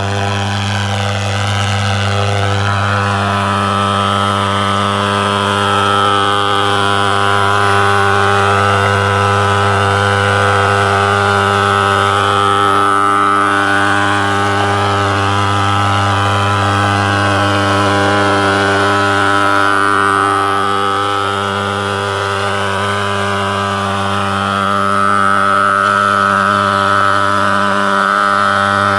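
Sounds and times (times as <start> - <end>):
pulse-jet engine drone: 0.0 - 28.9.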